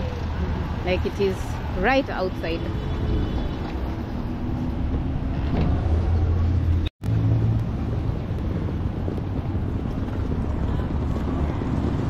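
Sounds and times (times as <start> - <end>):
street traffic noise: 0.0 - 12.0
vehicle engine running nearby: 2.8 - 12.0.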